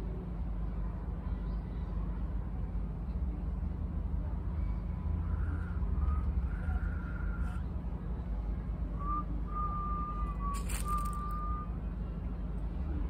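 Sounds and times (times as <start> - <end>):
city traffic rumble: 0.0 - 13.0
high whistle-like tone: 9.0 - 11.8
short crackle: 10.5 - 11.4.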